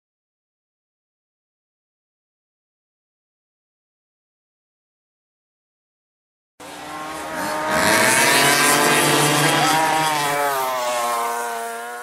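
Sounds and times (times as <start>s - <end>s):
racing engine revving: 6.6s - 12.0s.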